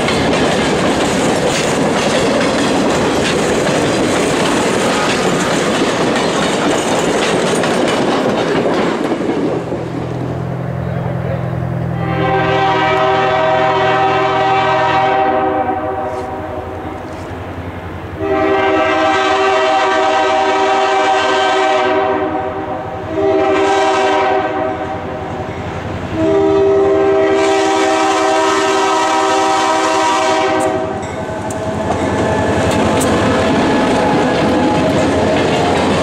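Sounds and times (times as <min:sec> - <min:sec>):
locomotive engine and wheels: 0:00.0 - 0:14.2, 0:16.0 - 0:19.0, 0:24.8 - 0:36.0
locomotive air horn blasts: 0:11.9 - 0:17.0, 0:18.2 - 0:25.2, 0:26.1 - 0:32.6.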